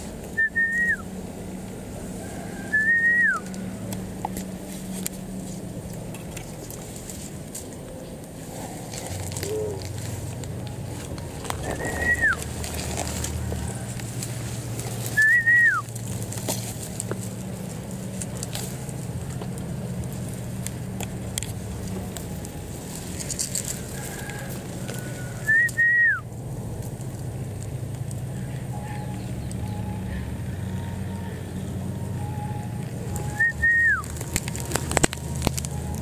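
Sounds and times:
steady low hum: 0.0 - 36.0
faint short whistle notes: 11.7 - 12.4
loud clear whistle: 25.5 - 26.2, 32.2 - 34.0.

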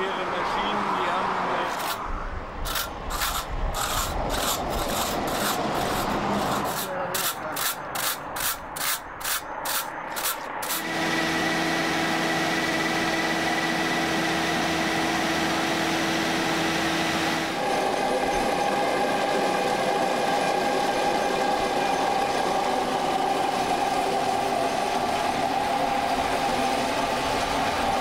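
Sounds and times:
scraper rasping on concrete: 1.7 - 2.0, 2.7 - 10.9
milling machine humming: 10.6 - 28.0.

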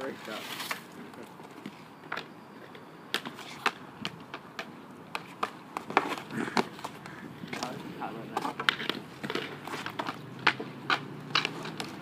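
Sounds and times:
skate wheels rolling on pavement: 0.0 - 12.0
hockey stick clacking: 3.1 - 12.0.

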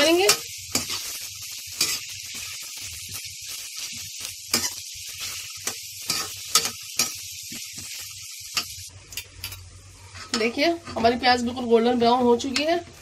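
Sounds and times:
onions sizzling in hot oil: 0.0 - 13.0
spatula scraping a pan: 4.5 - 8.7, 10.0 - 11.2.

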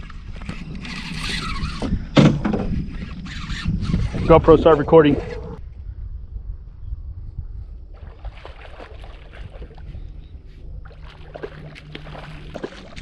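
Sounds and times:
wind rumble on microphone: 0.0 - 13.0
water splashing against boat hull: 10.8 - 13.0.

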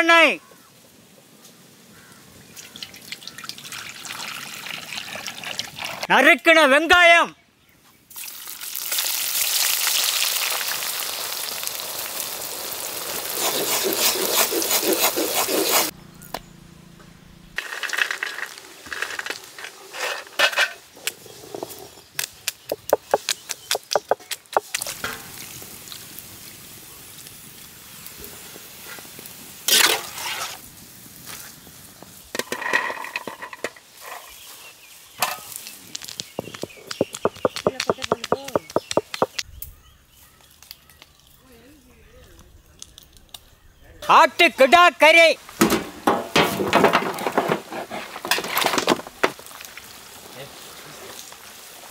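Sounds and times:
onions sizzling in oil: 8.2 - 14.4, 24.6 - 32.4, 49.4 - 51.9
nuts clattering onto stone slab: 32.4 - 33.8, 35.2 - 39.4.

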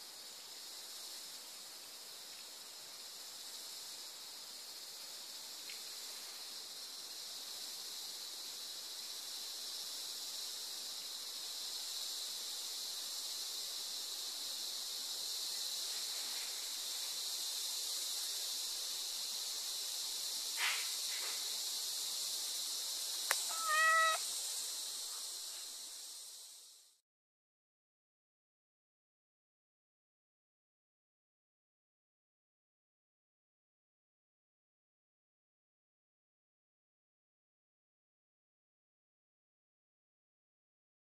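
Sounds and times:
steady high-pitched hiss: 0.0 - 27.0
cat meowing: 23.3 - 24.2.

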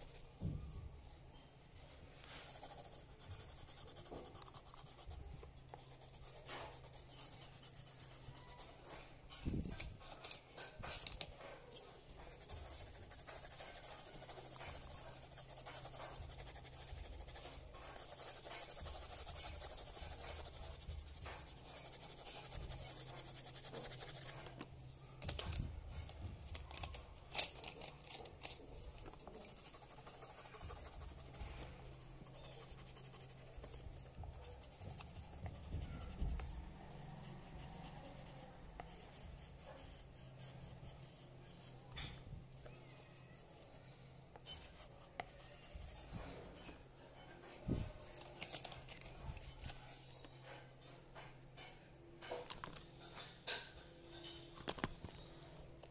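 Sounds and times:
pencil scratching on paper: 0.0 - 0.3, 2.3 - 9.0, 12.2 - 24.6, 29.3 - 36.7, 37.3 - 41.9, 43.2 - 46.4.

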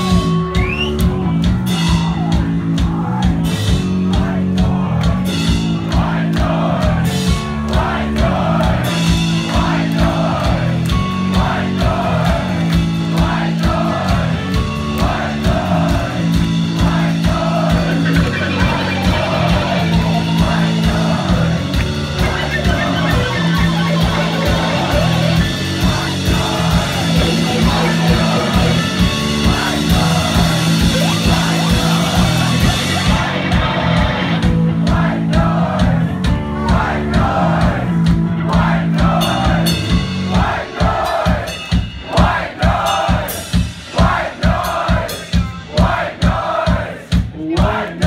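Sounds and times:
live rock band playing: 0.0 - 48.0
person singing: 16.8 - 34.3.

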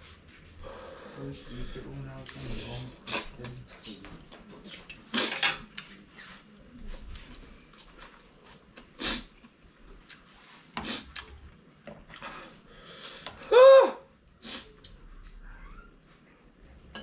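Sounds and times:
cutlery clinking and scraping plates: 4.8 - 5.8.

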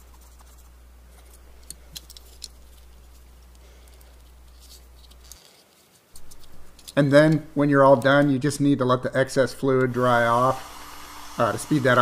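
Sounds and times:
swab scratchy rubbing: 0.0 - 1.4
steady low hum: 0.0 - 5.4, 6.2 - 12.0.

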